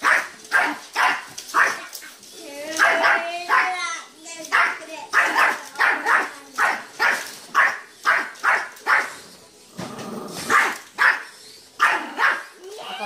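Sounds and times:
small dog barking: 0:00.0 - 0:01.9, 0:02.8 - 0:03.8, 0:04.5 - 0:09.1, 0:10.5 - 0:12.5.

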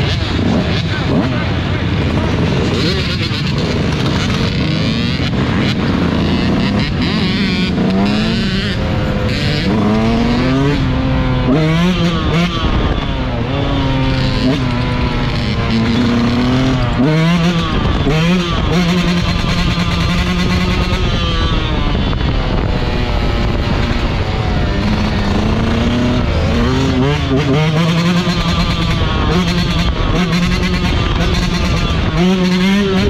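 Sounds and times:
two-stroke engine revving hard: 0:00.0 - 0:33.0.

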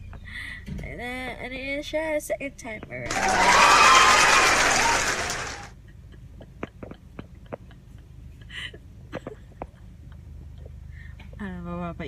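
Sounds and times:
loud rush of noise: 0:03.1 - 0:05.7.

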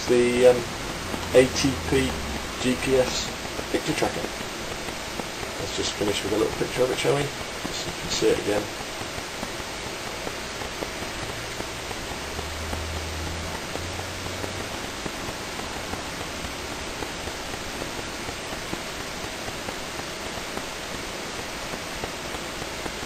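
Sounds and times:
low hum: 0:00.0 - 0:23.0
recording hiss: 0:00.0 - 0:23.0.

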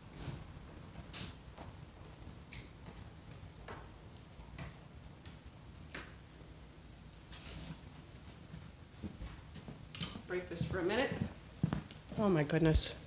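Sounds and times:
footsteps of person and dogs on concrete: 0:08.6 - 0:12.3.

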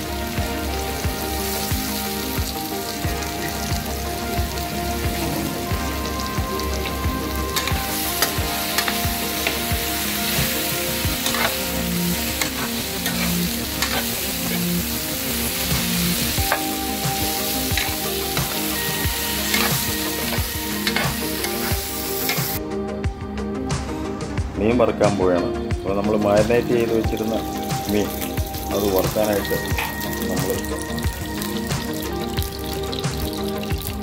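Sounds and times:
food sizzling in oil: 0:00.0 - 0:22.6, 0:26.6 - 0:34.0
metal spoon scraping pan: 0:11.2 - 0:11.7, 0:12.3 - 0:14.8.

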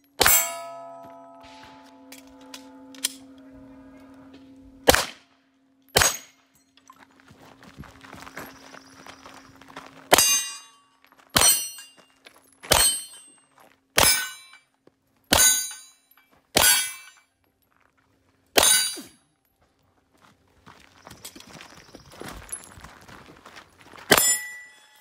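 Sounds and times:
steel plate ringing: 0:00.0 - 0:04.9, 0:10.1 - 0:12.1, 0:12.7 - 0:13.4, 0:15.3 - 0:17.2, 0:18.6 - 0:19.1, 0:24.1 - 0:25.0
pistol shots: 0:04.8 - 0:05.2, 0:06.0 - 0:06.3.

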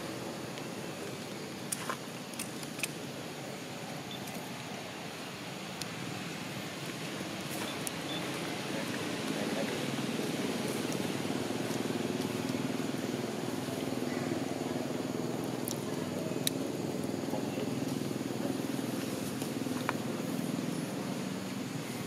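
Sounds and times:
low outdoor hum: 0:00.0 - 0:22.0.

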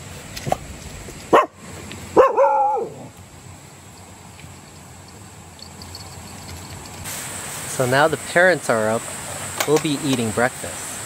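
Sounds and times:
dog barking: 0:01.3 - 0:01.6, 0:02.2 - 0:03.1.

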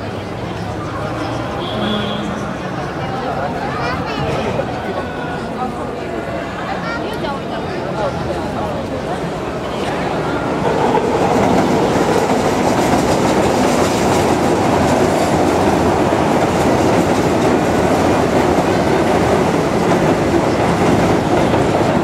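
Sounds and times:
train wheels rumbling on rails: 0:08.0 - 0:22.0.

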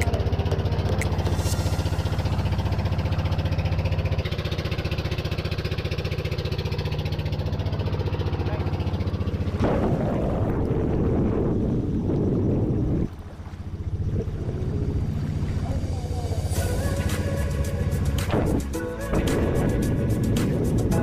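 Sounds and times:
boat engine running: 0:00.0 - 0:21.0
wind and spray rushing: 0:01.2 - 0:03.3.

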